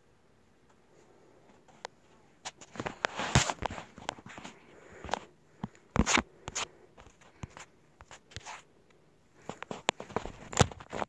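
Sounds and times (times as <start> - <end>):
rubbing scrapes on phone: 2.4 - 5.2, 6.0 - 8.7.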